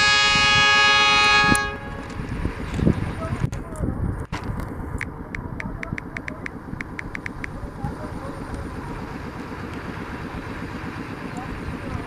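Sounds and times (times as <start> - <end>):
diesel locomotive running: 0.0 - 12.0.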